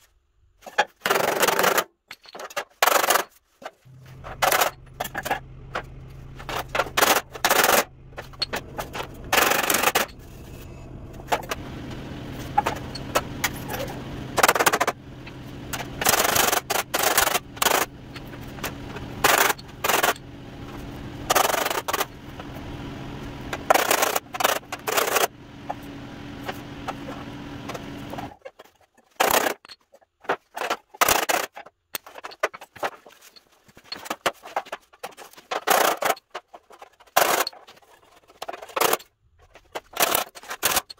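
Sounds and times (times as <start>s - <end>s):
steady low hum: 3.9s - 28.4s.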